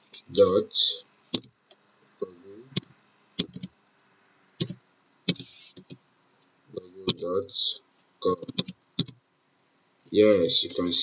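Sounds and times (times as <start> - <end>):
computer keyboard keystrokes: 1.3 - 1.5, 2.8 - 3.7, 8.4 - 9.2.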